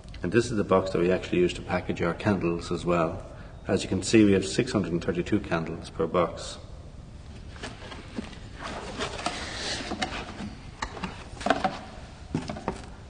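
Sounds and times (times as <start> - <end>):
cardboard rustling: 7.3 - 13.0.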